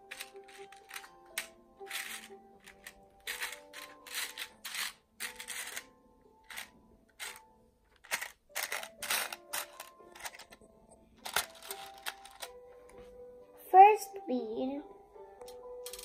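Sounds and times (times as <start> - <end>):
plastic beads clicking and rattling: 0.0 - 10.6, 11.2 - 12.5.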